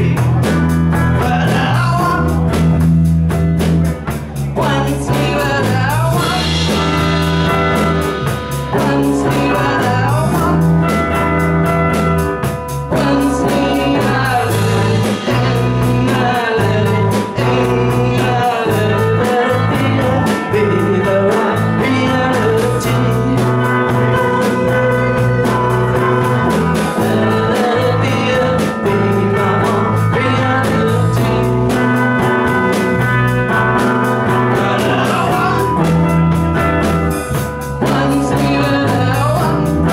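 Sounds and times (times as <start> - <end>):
person singing: 0.0 - 2.4, 4.2 - 12.1, 12.7 - 39.9
rock band playing live: 0.0 - 39.9.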